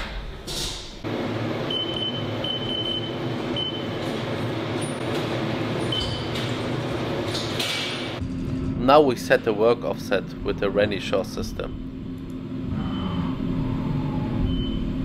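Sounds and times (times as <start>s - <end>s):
machine humming: 1.0s - 15.0s.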